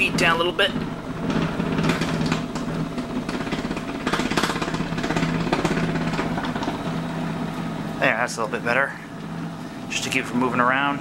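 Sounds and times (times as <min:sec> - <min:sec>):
vibration plate motor humming: 0:00.0 - 0:11.0
sharp knocks: 0:01.2 - 0:06.8.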